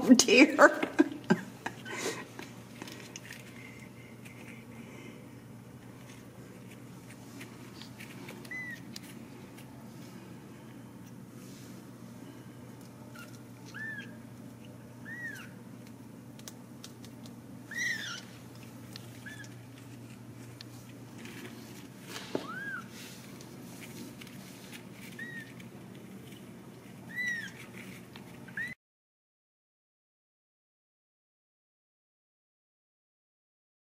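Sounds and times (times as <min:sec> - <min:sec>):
steady low hum: 0:00.0 - 0:28.8
kittens mewing: 0:08.3 - 0:09.0, 0:13.0 - 0:15.7, 0:17.7 - 0:18.3, 0:19.1 - 0:19.8, 0:22.4 - 0:23.0, 0:25.1 - 0:25.7, 0:27.0 - 0:27.8, 0:28.4 - 0:28.8.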